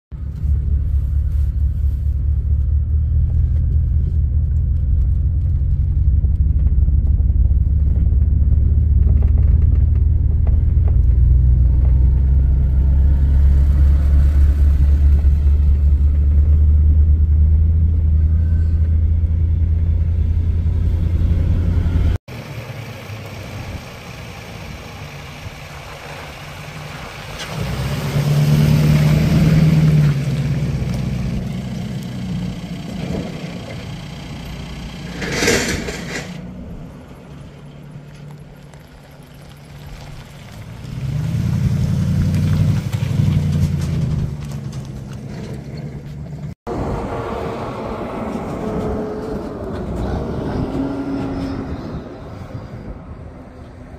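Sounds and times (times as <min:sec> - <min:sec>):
pickup truck driving past: 0:02.7 - 0:53.9.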